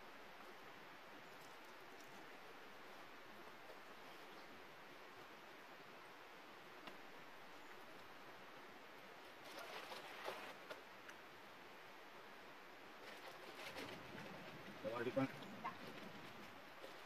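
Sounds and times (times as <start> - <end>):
faint outdoor hiss: 0.0 - 17.0
faint clicks and rustles: 13.0 - 17.0.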